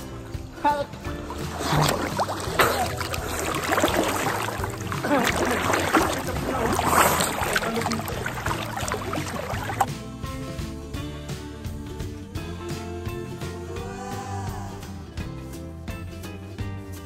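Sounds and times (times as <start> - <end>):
water splashing from swimmer: 1.2 - 9.9.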